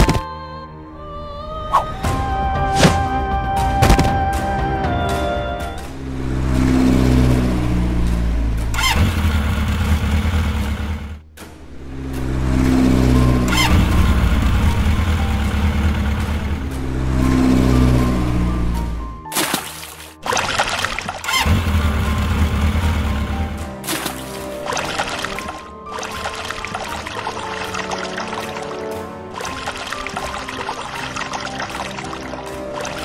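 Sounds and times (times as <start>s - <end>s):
motorboat engine revving: 5.8s - 31.8s
water splashing and trickling: 11.6s - 33.0s.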